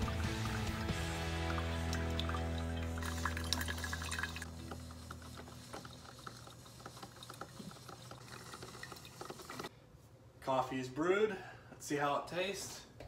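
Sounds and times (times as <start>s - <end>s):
coffee maker gurgling and dripping: 0.0s - 9.7s.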